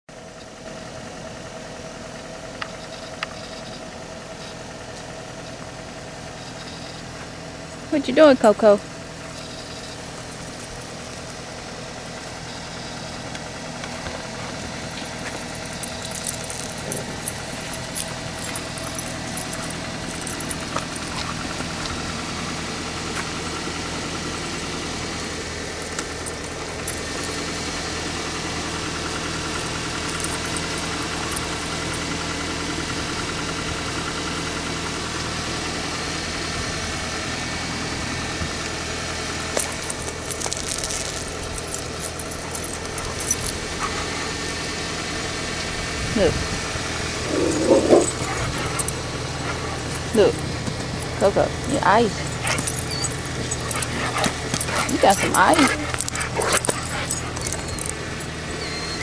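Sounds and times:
motor idling hum: 0.1 - 59.0
light clicks and rattles: 14.9 - 22.0, 39.4 - 44.7, 47.3 - 58.3.

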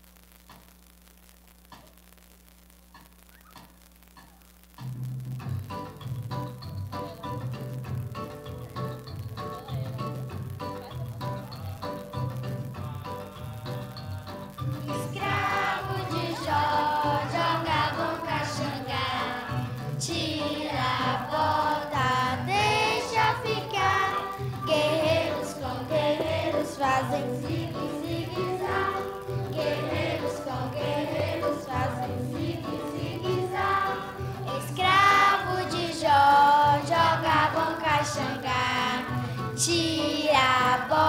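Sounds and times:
children's choir singing: 14.3 - 41.0.

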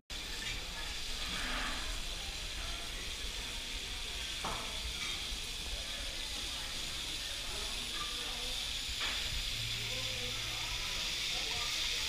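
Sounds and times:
food sizzling in a frying pan: 0.1 - 12.0.

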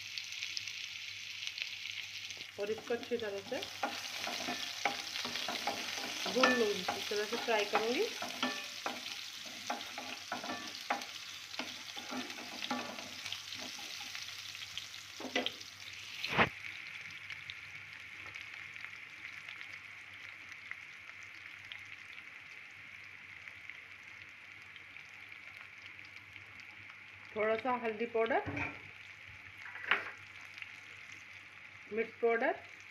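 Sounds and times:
onions sizzling in oil: 0.0 - 32.9
wooden spatula scraping a pan: 2.7 - 14.2.

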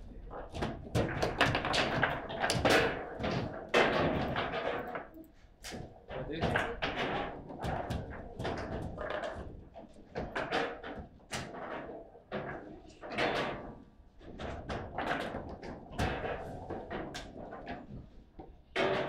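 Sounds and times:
table football clacking: 0.4 - 5.2.

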